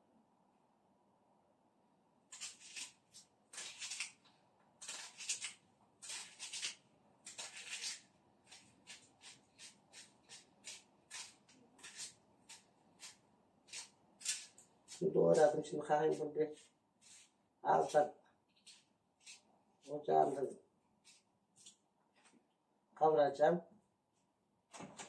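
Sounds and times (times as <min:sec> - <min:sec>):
knife slicing through onion: 0:02.3 - 0:22.3.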